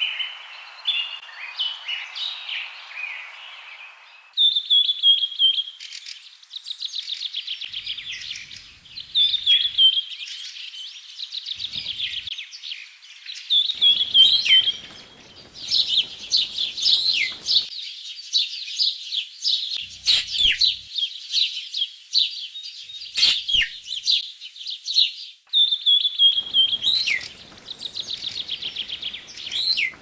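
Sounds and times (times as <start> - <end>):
bird chirps and whistled calls: 0.0 - 10.9, 13.5 - 17.7, 19.5 - 24.2, 25.0 - 30.0
bird trill: 7.7 - 10.3, 13.5 - 17.7, 19.8 - 21.5, 22.9 - 24.2, 25.5 - 30.0.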